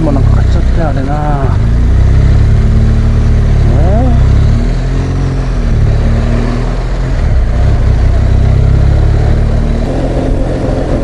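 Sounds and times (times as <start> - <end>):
motorcycle engine running: 0.0 - 11.0
wind noise: 4.5 - 11.0.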